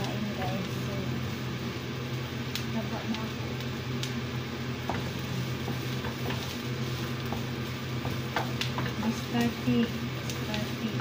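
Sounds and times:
onion sizzling in hot oil: 0.0s - 11.0s
steady low hum: 0.0s - 11.0s
wooden spatula tapping pan: 4.8s - 11.0s.

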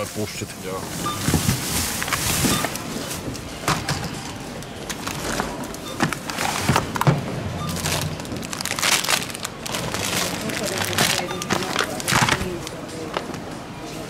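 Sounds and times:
plastic packaging rustling: 0.0s - 3.6s, 7.7s - 13.5s
low background hum: 0.0s - 14.0s.

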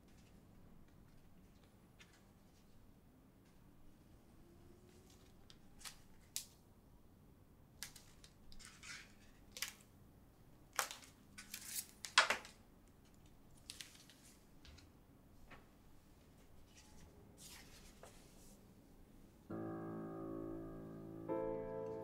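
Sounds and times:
paper rustling and scraping: 16.6s - 18.5s.

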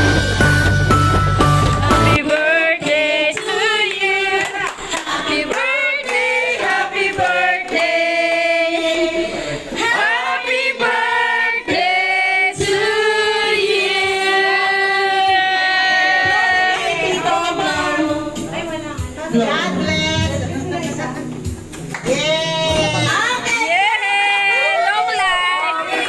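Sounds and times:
music with heavy bass: 0.0s - 2.2s
people singing together: 1.7s - 21.2s
woman singing into microphone: 14.0s - 21.1s.

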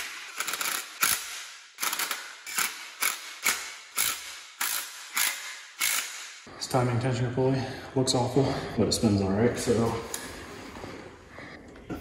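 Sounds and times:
impact driver bursts: 0.0s - 6.3s.

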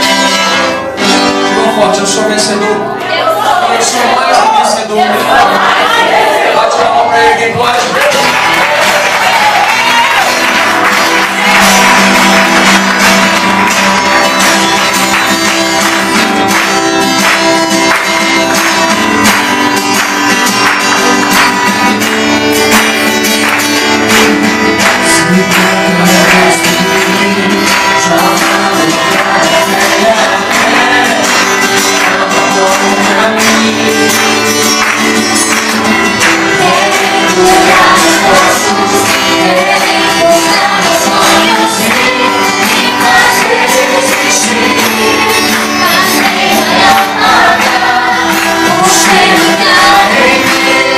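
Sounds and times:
strummed acoustic guitar: 0.0s - 50.9s
man singing: 1.4s - 5.5s, 24.1s - 35.5s, 36.2s - 50.9s
hand clapping: 7.8s - 50.9s.

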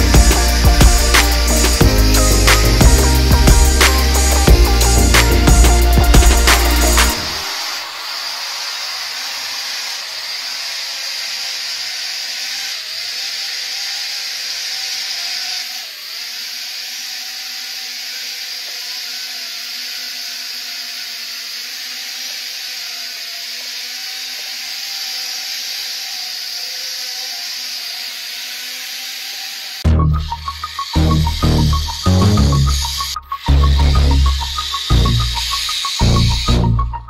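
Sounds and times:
toy drone buzzing with high whine: 0.0s - 37.0s.

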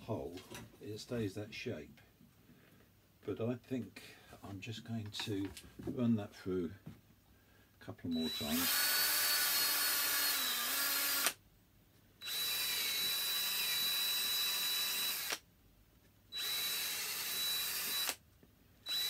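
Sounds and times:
cordless drill whining: 8.1s - 11.4s, 12.2s - 15.4s, 16.3s - 18.2s.

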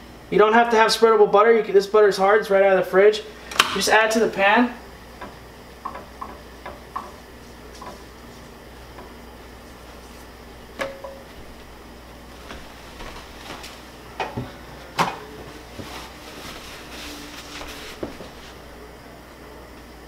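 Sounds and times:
kitchen knocks and clatters: 10.8s - 11.6s, 14.2s - 16.0s.

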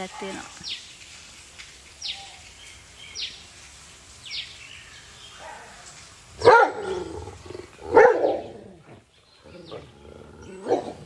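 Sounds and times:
dog barking: 0.0s - 0.5s, 5.4s - 7.1s, 7.8s - 8.6s, 10.6s - 11.0s.

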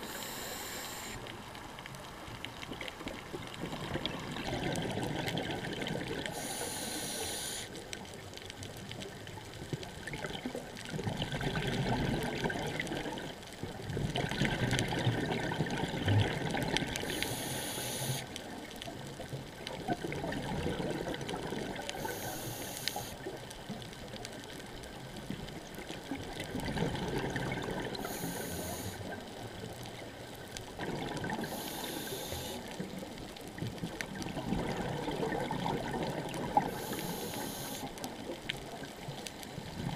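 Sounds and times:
regulator hissing inhale: 0.0s - 1.3s, 6.3s - 7.8s, 17.0s - 18.3s, 22.0s - 23.2s, 28.0s - 29.2s, 31.4s - 32.7s, 36.7s - 37.9s
exhaled air bubbling: 2.6s - 7.7s, 9.1s - 18.3s, 19.4s - 23.8s, 25.3s - 39.9s.

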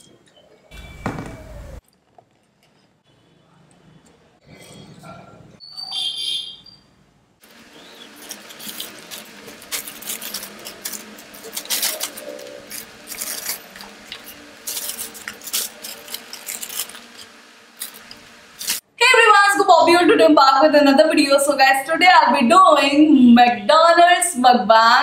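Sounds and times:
paper bags crinkling: 7.4s - 18.8s.

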